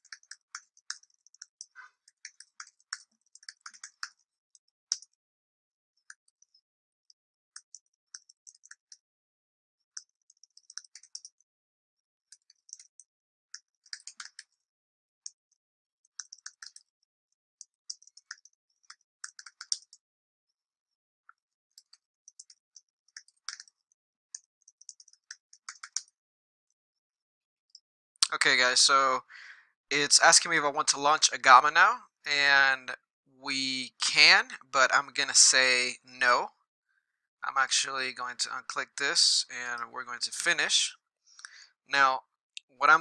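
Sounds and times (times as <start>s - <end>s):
typing on computer keyboard: 0.0s - 4.2s, 7.6s - 9.0s, 10.0s - 11.4s, 12.3s - 14.6s, 16.2s - 17.0s, 17.9s - 20.0s, 21.8s - 26.1s.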